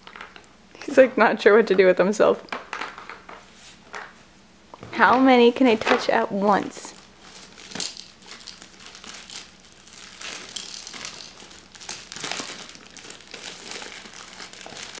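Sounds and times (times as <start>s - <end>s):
wrapping paper crinkling: 6.5s - 15.0s.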